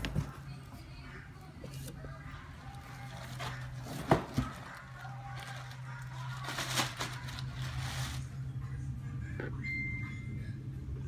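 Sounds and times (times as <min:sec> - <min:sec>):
plastic wrapping crinkling: 0:02.6 - 0:08.4.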